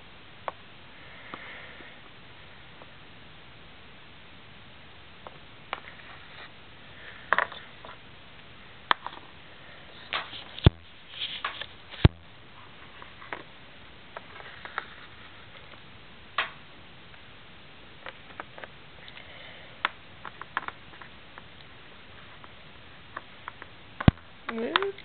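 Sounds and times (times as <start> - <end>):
sharp knocks: 10.2 - 10.9.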